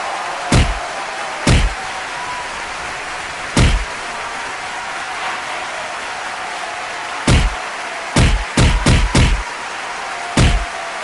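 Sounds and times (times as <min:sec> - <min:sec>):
heavy thuds: 0:00.5 - 0:00.8, 0:01.5 - 0:01.8, 0:03.6 - 0:03.9, 0:07.3 - 0:07.6, 0:10.4 - 0:10.6.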